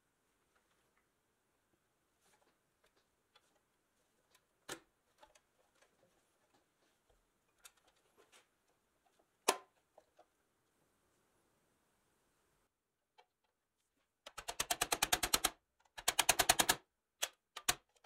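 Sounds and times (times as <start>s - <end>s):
metal toy parts clicking and knocking: 14.3s - 18.0s.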